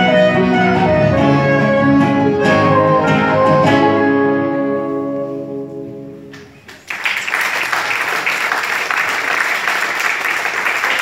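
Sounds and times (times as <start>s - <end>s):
audience applause: 6.7s - 11.0s.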